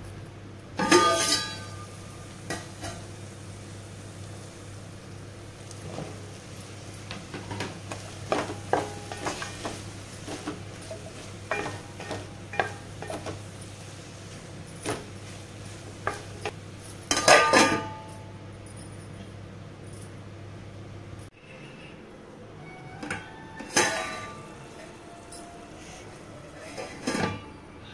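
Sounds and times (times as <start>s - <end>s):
steel plate clattering on pot: 0.8s - 1.9s, 7.4s - 13.4s, 17.1s - 18.1s
wooden spatula clacking in pot: 7.6s - 13.4s.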